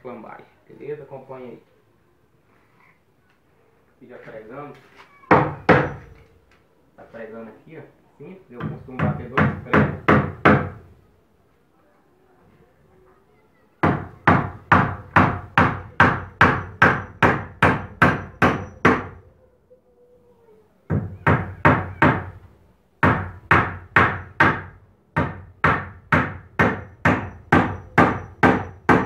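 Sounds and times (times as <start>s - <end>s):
hammer driving nails into wood: 23.0s - 29.0s.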